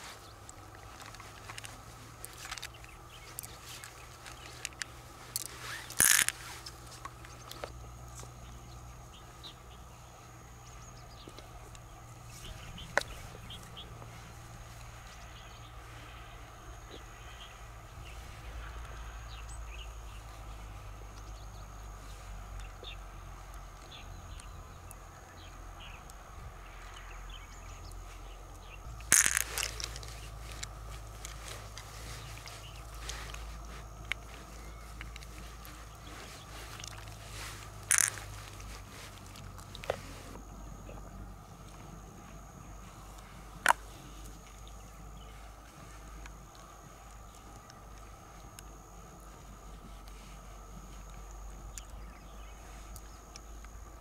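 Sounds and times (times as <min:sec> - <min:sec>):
scraping rustle: 0:00.0 - 0:22.7, 0:27.5 - 0:40.8
small bird chirps: 0:00.0 - 0:39.8
shells clicking and rustling: 0:00.1 - 0:08.4, 0:28.8 - 0:40.4.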